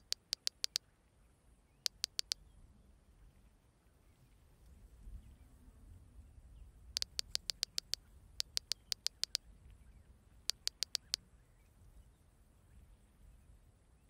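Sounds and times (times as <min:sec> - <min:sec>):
phone keyboard key clicks: 0:00.0 - 0:00.8, 0:01.9 - 0:02.4, 0:07.0 - 0:09.4, 0:10.5 - 0:11.2.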